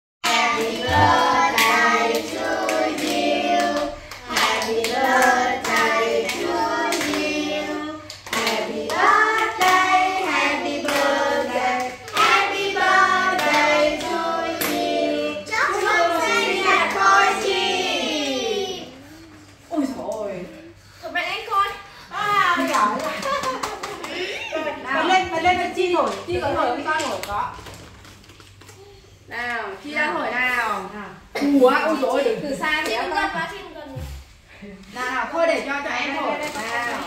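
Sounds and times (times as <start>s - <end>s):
group singing birthday song: 0.2s - 19.0s
people clapping along: 0.3s - 7.4s, 8.0s - 14.9s, 22.6s - 24.2s.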